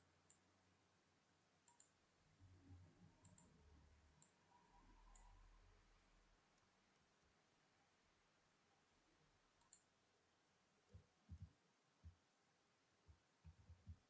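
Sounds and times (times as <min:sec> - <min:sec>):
computer mouse clicks: 0:00.2 - 0:00.4, 0:01.6 - 0:02.0, 0:03.2 - 0:03.6, 0:04.2 - 0:04.4, 0:05.0 - 0:05.4, 0:09.6 - 0:09.9.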